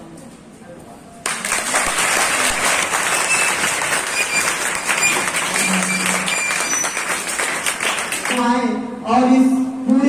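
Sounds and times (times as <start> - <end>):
audience applause: 1.2 - 8.5.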